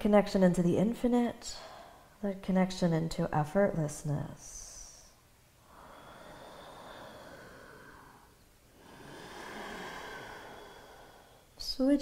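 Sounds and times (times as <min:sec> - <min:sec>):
woman breathing deeply: 0:01.6 - 0:02.2, 0:05.2 - 0:11.6.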